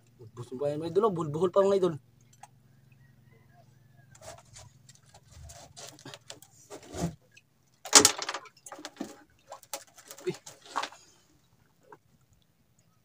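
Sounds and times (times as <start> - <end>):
hands handling fishing line: 4.2 - 6.9, 7.9 - 11.1.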